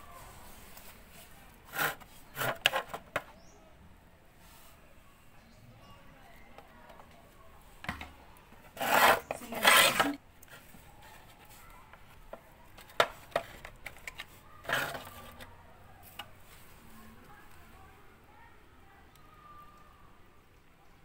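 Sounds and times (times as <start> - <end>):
scraping plastic drawer: 1.7 - 3.2, 8.7 - 10.2, 12.9 - 15.5.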